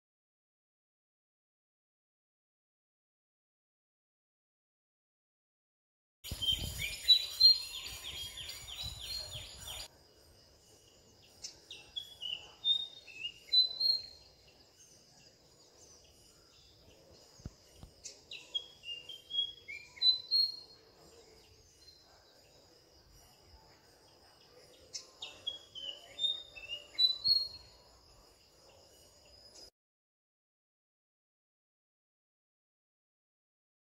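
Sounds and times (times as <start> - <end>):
bird singing whistled notes: 6.3 - 10.0, 10.6 - 29.7.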